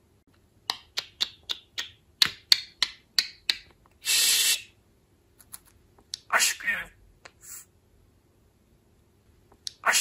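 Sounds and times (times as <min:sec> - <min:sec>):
budgerigar harsh hissing: 0:04.0 - 0:04.7.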